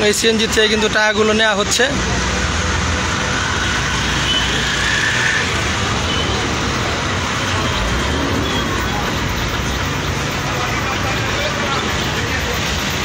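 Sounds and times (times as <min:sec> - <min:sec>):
vehicles running and passing: 0:00.0 - 0:13.0.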